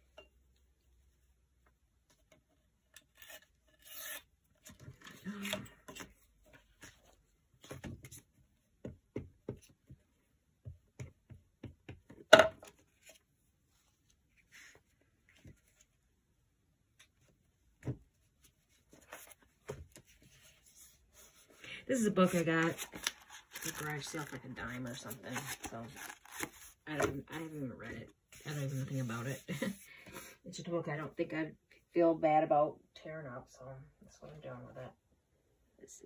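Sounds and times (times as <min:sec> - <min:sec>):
paper rustling and rubbing: 0:18.4 - 0:26.8, 0:28.3 - 0:30.3.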